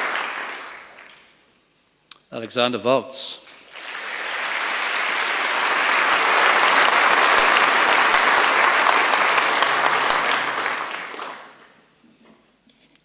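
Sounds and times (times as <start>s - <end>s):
large audience applauding: 0.0s - 1.3s, 3.7s - 11.8s.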